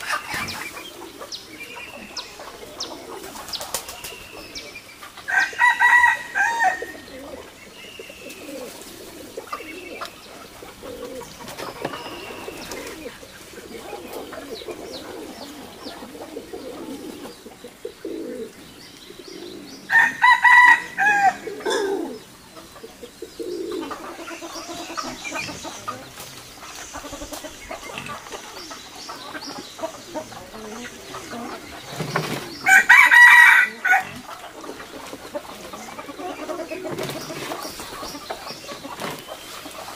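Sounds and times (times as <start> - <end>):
hens clucking: 0.0 - 39.9
rooster crowing: 5.3 - 7.0, 19.9 - 22.0, 32.7 - 34.2.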